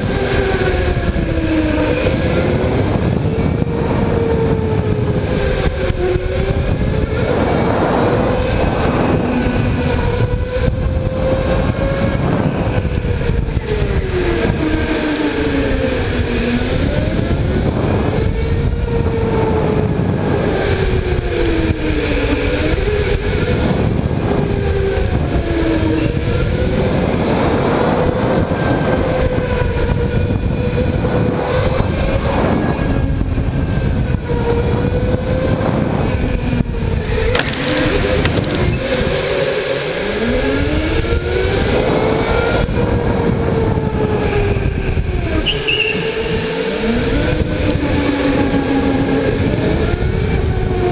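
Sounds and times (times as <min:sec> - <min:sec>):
electric go-kart motors whining: 0:00.0 - 0:50.9
tyres rumbling on track: 0:00.0 - 0:50.9.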